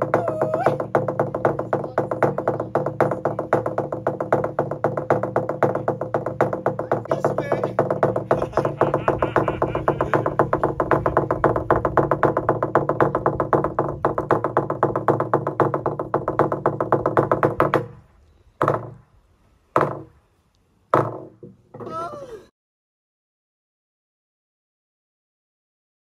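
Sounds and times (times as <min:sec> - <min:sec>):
slit drum beaten with sticks: 0:00.0 - 0:18.0.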